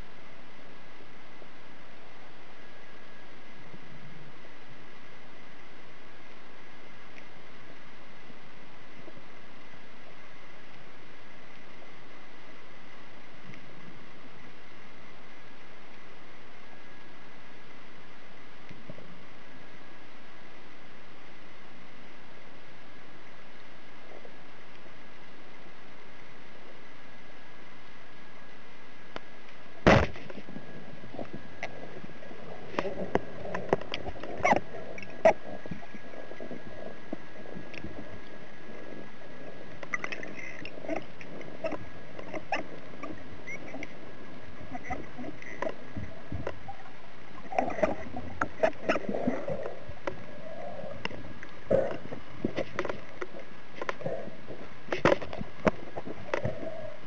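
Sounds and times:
faint steady high whine: 0.0s - 57.0s
loud sharp snap underwater: 29.8s - 30.3s
low wobbling sounds: 29.8s - 57.0s
underwater clicks and knocks: 32.7s - 38.0s, 39.7s - 44.0s, 44.7s - 46.8s, 47.4s - 50.3s, 50.9s - 56.7s.

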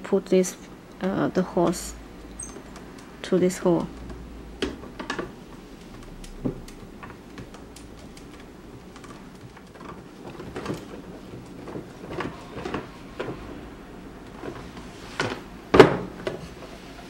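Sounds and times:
acrylic panels clicking and knocking: 1.4s - 13.6s.

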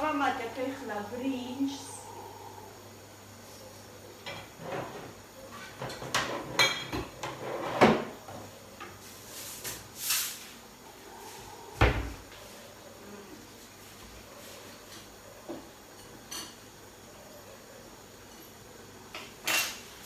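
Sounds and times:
kitchenware knocks and clatters: 4.2s - 8.5s
short hiss: 9.5s - 10.6s.

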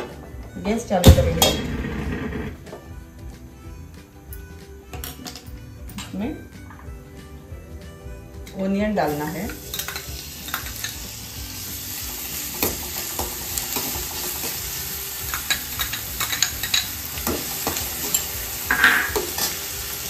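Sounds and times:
onions sizzling: 8.4s - 20.0s
steel spoon scraping a pan: 9.0s - 11.3s, 12.3s - 20.0s.

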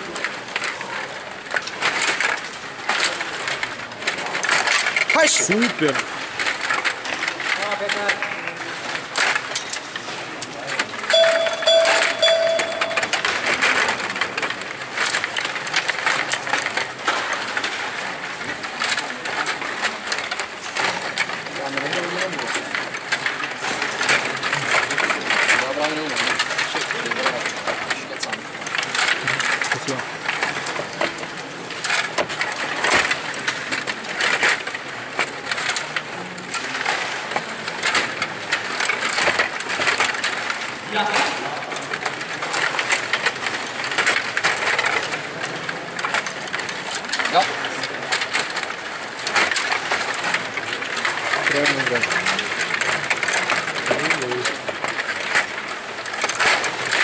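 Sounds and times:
table hockey clatter: 0.0s - 57.0s
beeping tone: 11.1s - 13.6s.

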